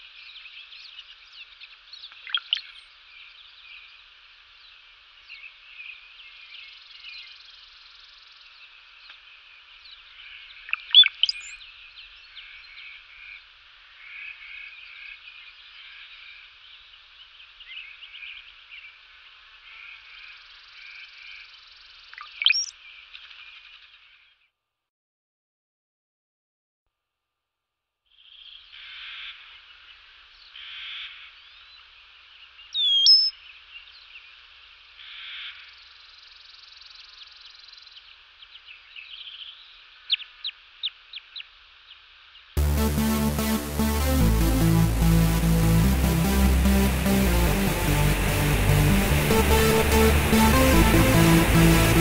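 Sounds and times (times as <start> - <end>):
chorus of small animal calls: 22.2 - 22.7, 32.7 - 33.4.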